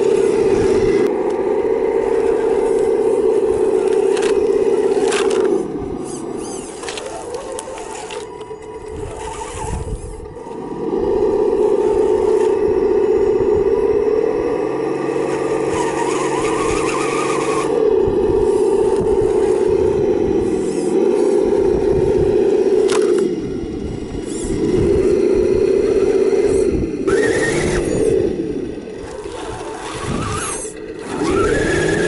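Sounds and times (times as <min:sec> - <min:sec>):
simulated engine drone: 0:00.0 - 0:32.0.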